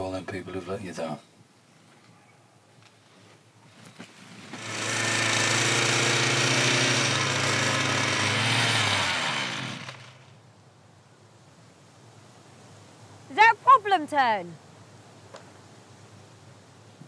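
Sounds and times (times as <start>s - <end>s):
strimmer running and winding down: 4.3s - 10.3s.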